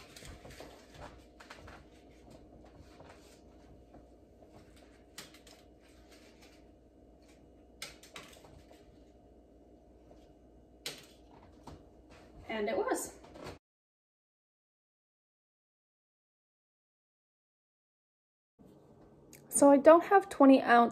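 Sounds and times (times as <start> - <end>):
room hum: 0.0 - 13.6, 18.6 - 20.9.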